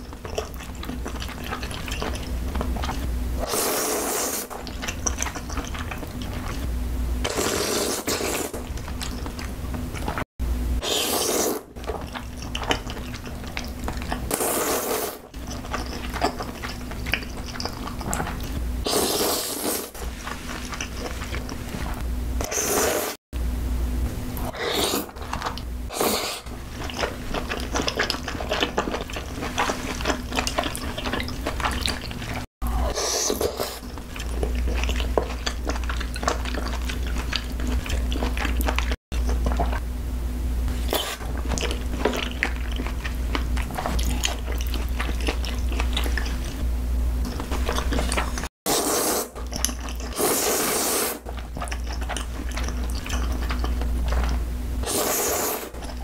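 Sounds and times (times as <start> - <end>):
wet chewing and smacking: 0.0 - 3.1, 4.4 - 6.7, 8.5 - 10.3, 11.6 - 14.4, 15.2 - 18.6, 20.0 - 22.1, 25.1 - 25.7, 26.4 - 32.5, 33.2 - 39.8, 40.7 - 48.5, 49.3 - 50.6, 51.2 - 55.0, 55.7 - 56.0
loud noodle slurps: 3.4 - 4.6, 7.2 - 8.6, 10.8 - 11.7, 14.3 - 15.4, 18.8 - 23.2, 24.4 - 28.6, 29.5 - 33.9, 47.7 - 53.6, 54.8 - 56.0.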